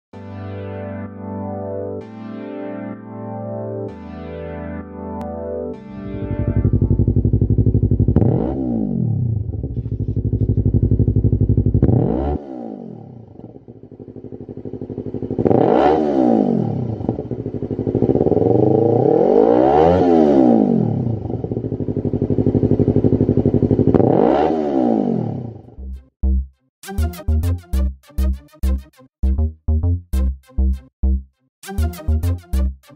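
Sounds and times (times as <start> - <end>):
motorcycle engine revving: 6.2 - 25.8.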